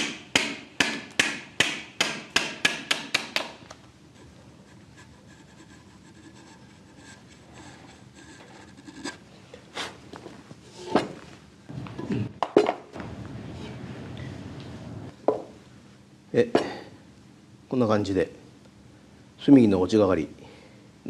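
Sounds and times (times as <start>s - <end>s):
hammer striking chisel: 0.0s - 3.6s
chisel scraping wood: 4.1s - 9.2s.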